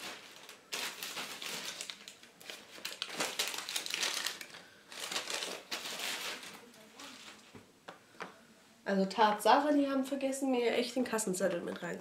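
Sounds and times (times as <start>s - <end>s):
packaging crinkling and rustling: 0.0s - 7.5s.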